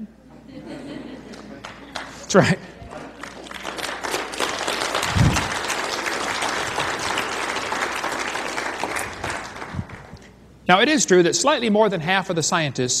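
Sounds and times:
audience applauding: 1.3 - 10.3.

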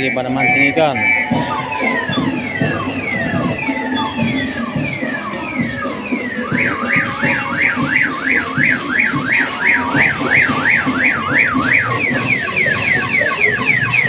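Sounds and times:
electronic siren alarm tone: 0.0 - 14.0.

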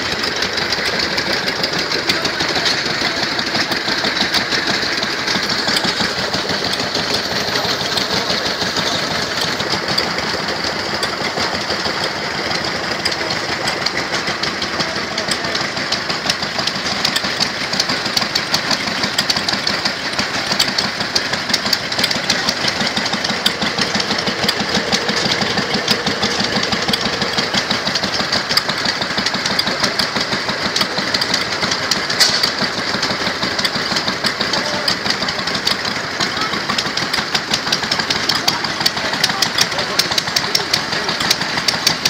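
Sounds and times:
stationary engines knocking: 0.0 - 42.0
sharp click: 30.7 - 32.7.

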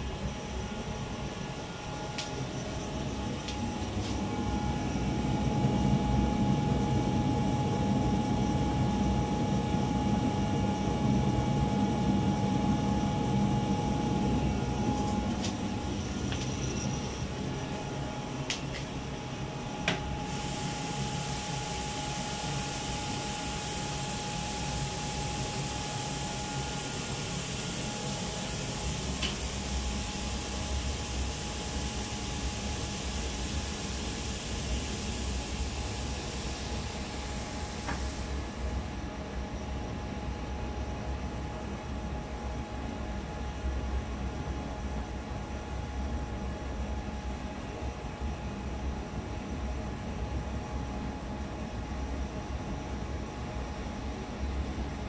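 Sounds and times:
steady high hiss: 0.0 - 39.0
fan and water pump humming: 0.0 - 55.0.

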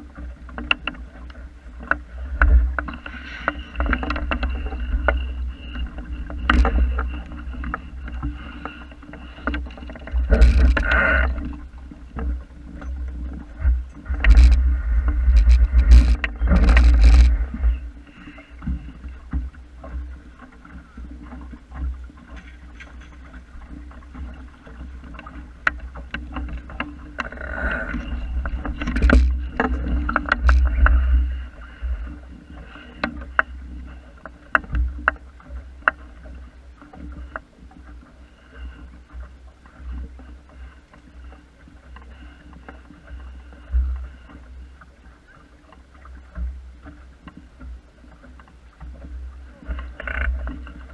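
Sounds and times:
water splashing against a hull: 0.0 - 50.9
wind buffeting microphone: 13.5 - 18.0.

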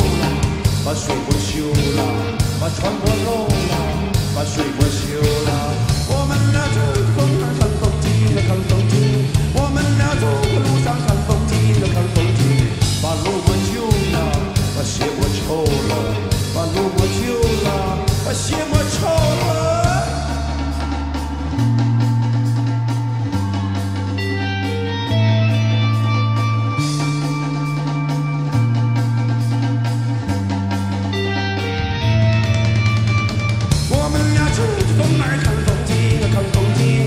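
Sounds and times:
male singer: 0.0 - 21.1, 33.7 - 37.0
bass guitar notes: 0.0 - 37.0
drums: 0.0 - 37.0
electric guitar: 0.0 - 37.0.

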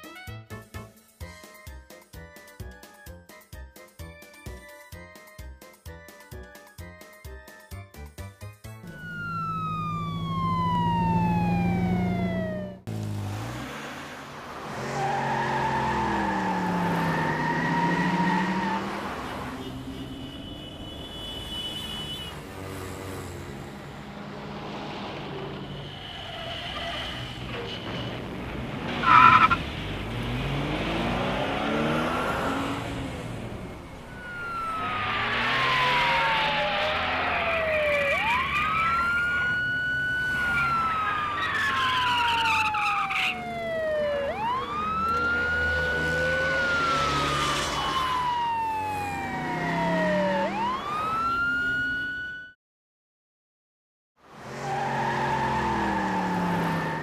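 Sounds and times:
police siren wailing: 8.8 - 12.9, 14.8 - 19.4, 29.0 - 29.6, 30.6 - 52.6, 54.5 - 57.0
cartoon car engines driving past: 8.9 - 19.9, 22.4 - 52.5, 54.2 - 57.0.

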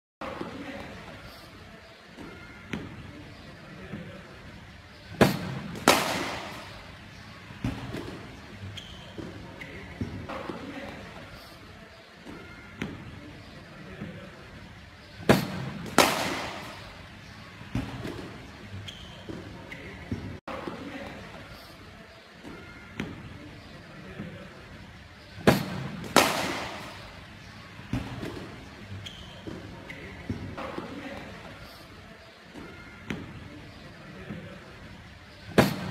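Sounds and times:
cricket bat striking ball: 5.2 - 6.8, 15.3 - 16.9, 25.5 - 27.1.

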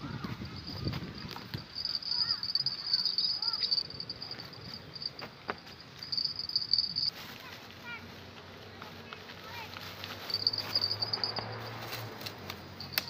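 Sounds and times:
insects trilling: 0.6 - 7.1, 10.2 - 11.6.

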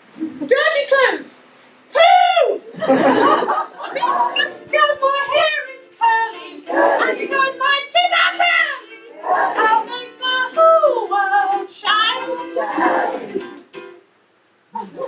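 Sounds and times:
woman singing: 3.9 - 13.4
strummed ukulele: 3.9 - 15.0.

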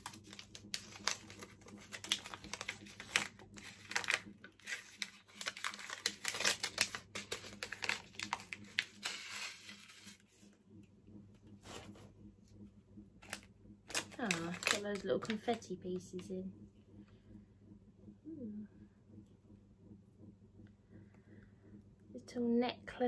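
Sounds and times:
paper wrapping crinkling: 0.0 - 10.3, 13.2 - 15.6.

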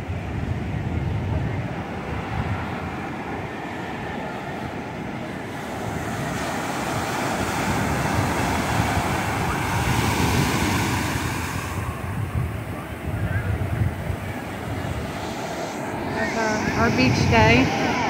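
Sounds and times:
ocean surf breaking: 0.0 - 18.0
wind rumbling on microphone: 0.0 - 18.0.

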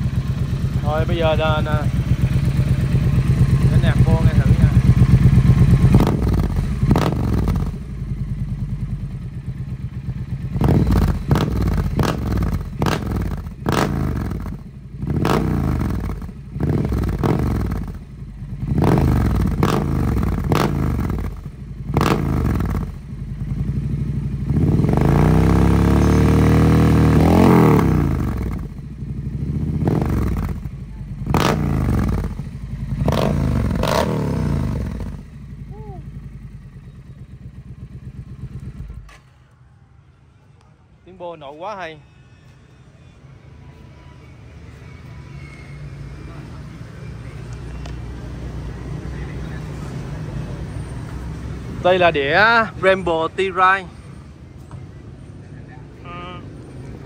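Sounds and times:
motorcycle engine revving: 0.0 - 39.2.

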